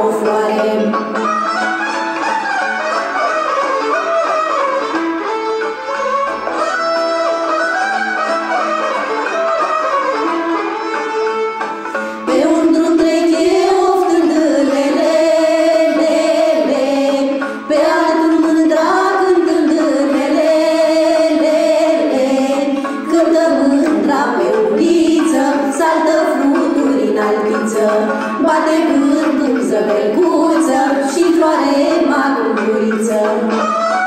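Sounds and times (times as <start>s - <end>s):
women and girls singing together: 0.0s - 1.0s, 12.2s - 33.8s.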